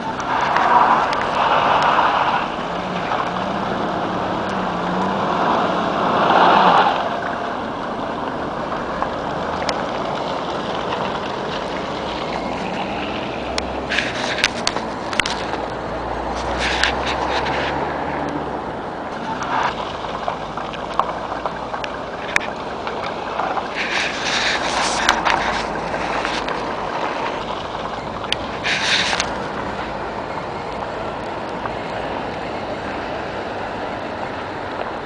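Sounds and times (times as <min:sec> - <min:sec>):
cars passing hiss: 0:00.0 - 0:07.8, 0:22.0 - 0:35.0.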